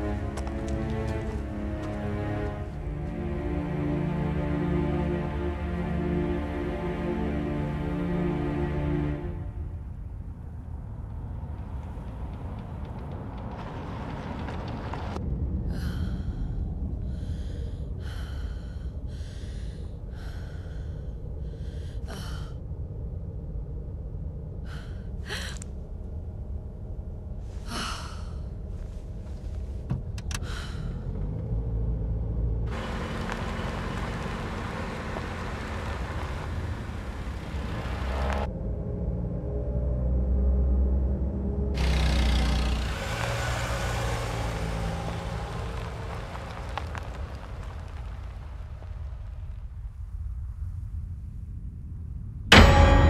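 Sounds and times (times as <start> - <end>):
car engine and road noise: 0.0 - 16.2, 25.7 - 53.0
low rumble of car cabin: 21.6 - 51.4.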